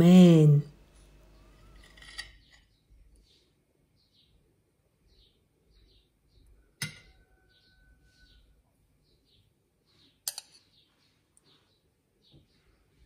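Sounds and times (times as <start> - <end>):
faint high chirps: 5.1 - 13.0.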